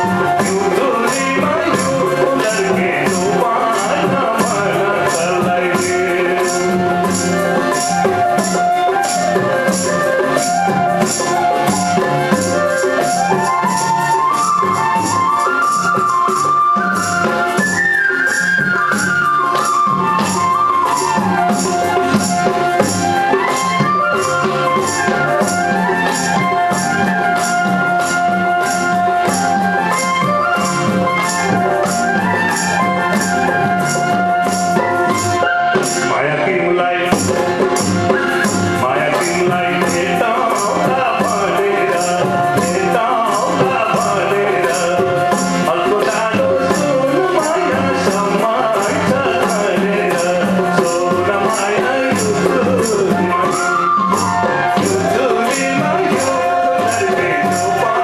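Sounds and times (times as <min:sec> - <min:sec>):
man singing: 0:00.0 - 0:09.6, 0:35.6 - 0:58.0
bamboo flutes playing melody: 0:00.0 - 0:58.0
harmonium: 0:00.0 - 0:58.0
high percussion beat: 0:00.0 - 0:58.0.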